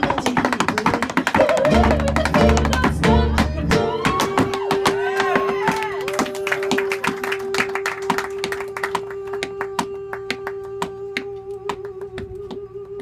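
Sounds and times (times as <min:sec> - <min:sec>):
tap shoes on wooden board: 0:00.0 - 0:02.9, 0:03.7 - 0:05.9.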